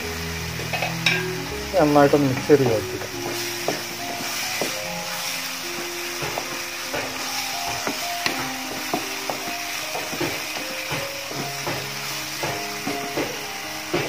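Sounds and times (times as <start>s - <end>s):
light sizzle: 0.0s - 14.0s
soft background music: 0.0s - 14.0s
spatula scraping a pan: 3.0s - 14.0s.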